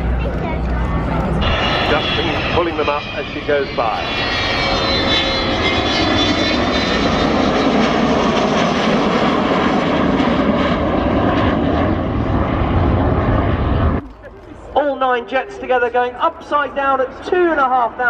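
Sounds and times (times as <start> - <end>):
jet engines roaring: 0.0 - 18.0
high whistling jet whine: 1.2 - 14.0.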